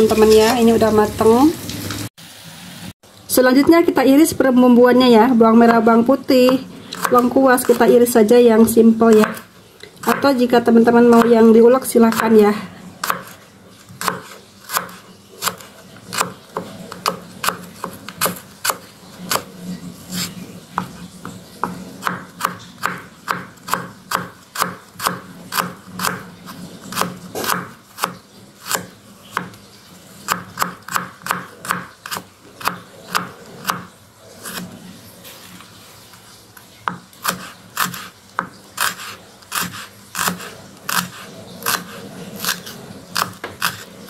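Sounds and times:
knife chopping on wooden board: 0:14.0 - 0:19.4, 0:26.9 - 0:29.5.

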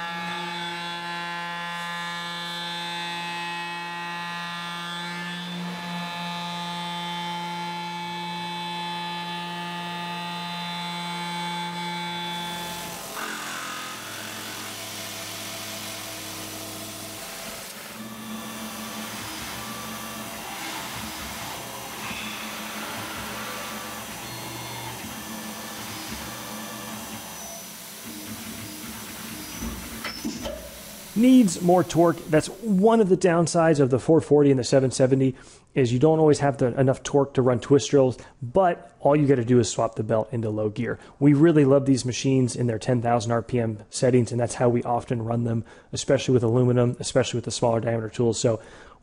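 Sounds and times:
milling machine spindle whine: 0:00.0 - 0:33.1.

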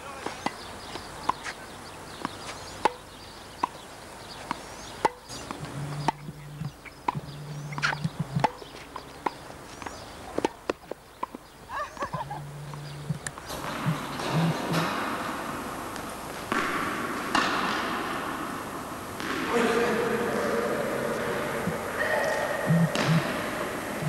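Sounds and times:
tennis ball bouncing on court: 0:00.2 - 0:01.6, 0:02.2 - 0:03.8, 0:04.4 - 0:11.4, 0:12.0 - 0:15.2, 0:15.9 - 0:18.5, 0:19.2 - 0:19.8, 0:21.1 - 0:24.0
tennis ball struck by rackets: 0:02.2 - 0:03.8, 0:04.4 - 0:09.4, 0:12.7 - 0:20.1, 0:21.1 - 0:24.0.

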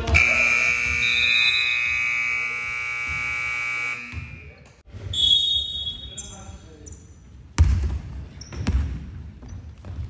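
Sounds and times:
scoreboard buzzer: 0:00.1 - 0:04.5.

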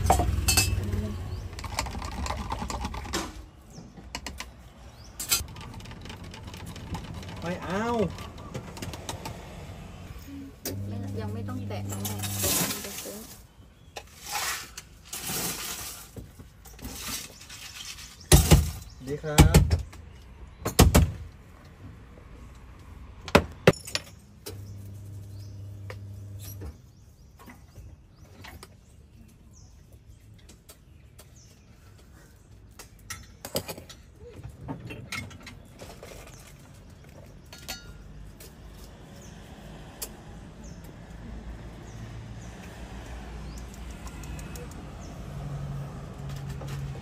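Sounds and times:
metal utensils clinking: 0:00.0 - 0:00.8.

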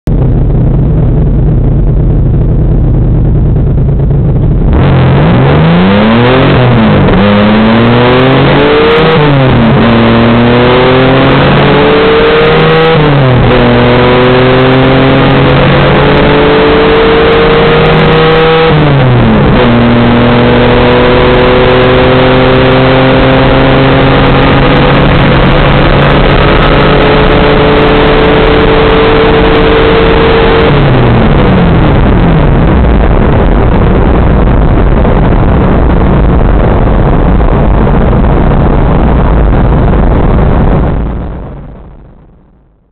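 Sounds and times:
car engine accelerating through gears: 0:00.1 - 0:41.4.

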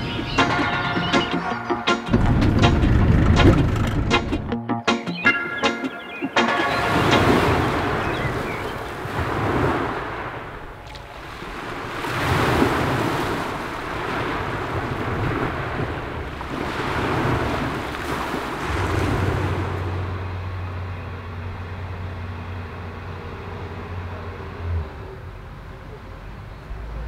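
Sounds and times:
steady low hum: 0:02.0 - 0:04.5
sea surf washing onto beach: 0:06.4 - 0:20.6.

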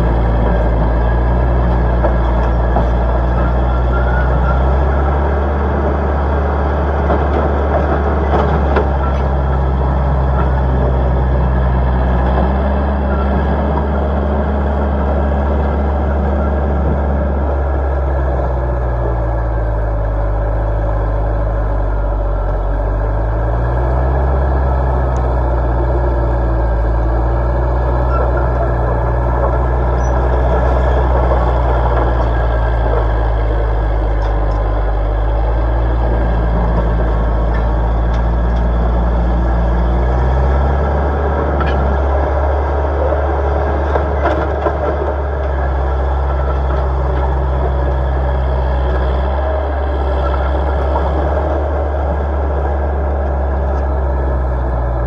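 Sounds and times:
diesel loader engine running hard: 0:00.0 - 0:55.0.

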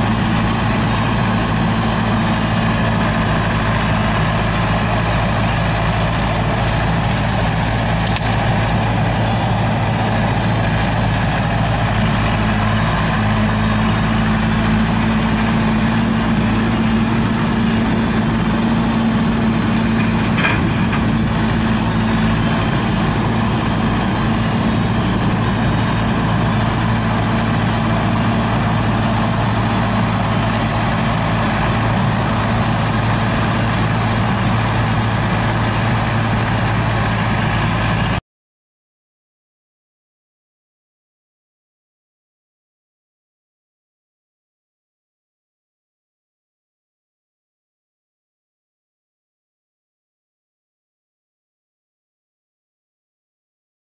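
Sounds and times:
diesel engine drone: 0:00.0 - 0:38.2.

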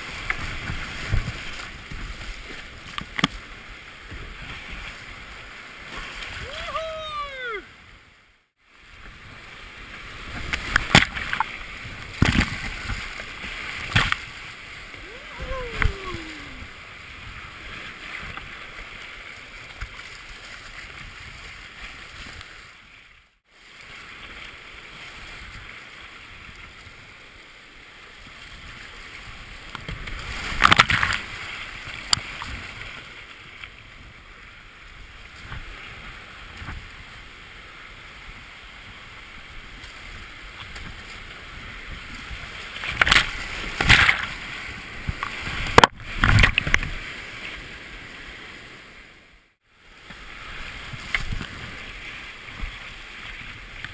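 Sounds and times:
whitewater rapids rushing: 0:06.1 - 0:07.7, 0:12.3 - 0:17.2.

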